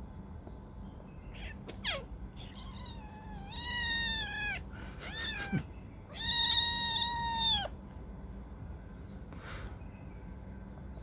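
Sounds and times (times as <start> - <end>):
cat meowing: 1.3 - 7.8.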